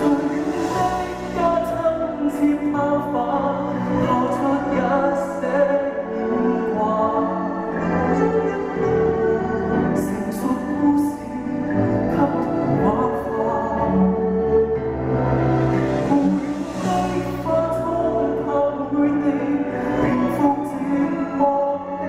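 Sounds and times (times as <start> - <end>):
man singing: 0.0 - 22.0
orchestra playing a slow ballad: 0.0 - 22.0.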